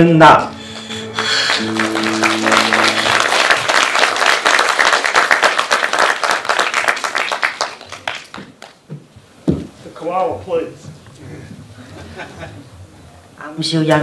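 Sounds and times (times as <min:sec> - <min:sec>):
held musical chord: 0:00.4 - 0:03.8
audience applauding: 0:00.7 - 0:08.8.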